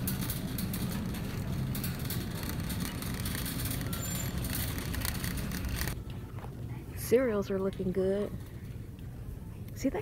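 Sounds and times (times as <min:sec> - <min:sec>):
cart basket rattling: 0:00.0 - 0:06.0
shopping cart wheels rumbling: 0:00.0 - 0:06.0.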